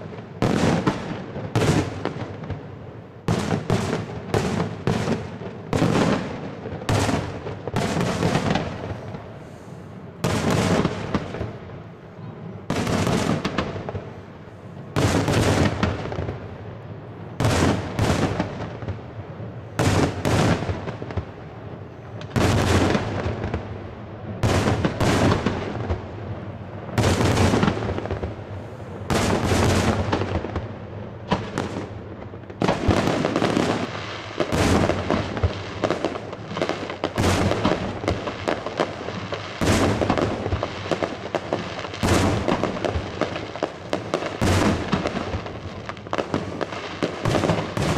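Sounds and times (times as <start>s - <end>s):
fireworks crackle: 0.0s - 11.9s, 12.6s - 47.9s
fireworks bangs: 0.0s - 47.9s.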